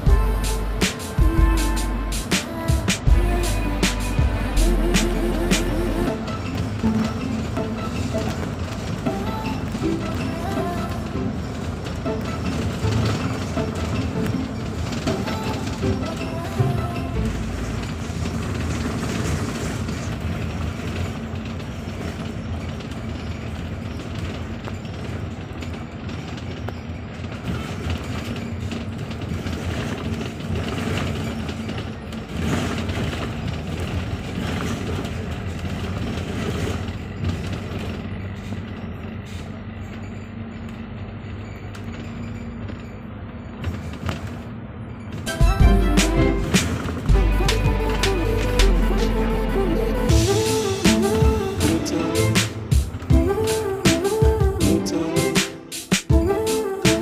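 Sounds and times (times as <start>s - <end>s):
bus engine drone: 0.0s - 57.0s
road and cabin noise: 0.0s - 57.0s.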